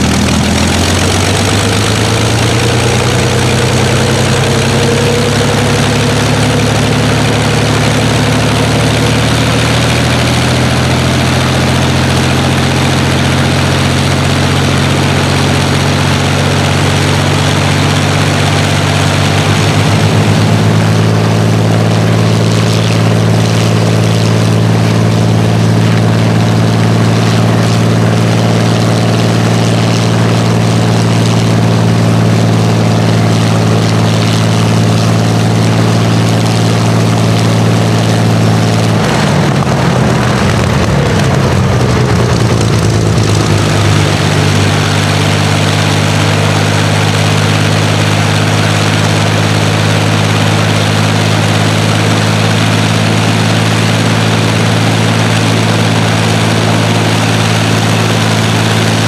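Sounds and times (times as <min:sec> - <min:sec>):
aero engine running: 0:00.0 - 0:59.0.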